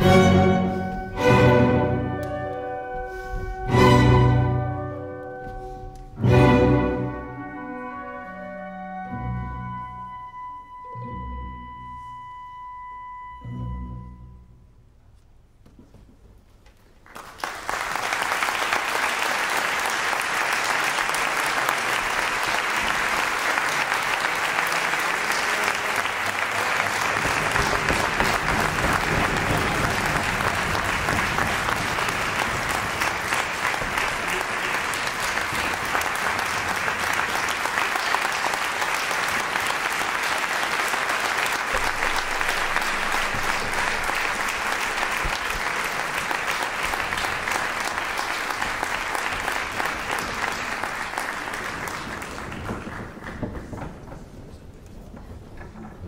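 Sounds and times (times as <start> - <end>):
audience applause: 17.0 - 56.0.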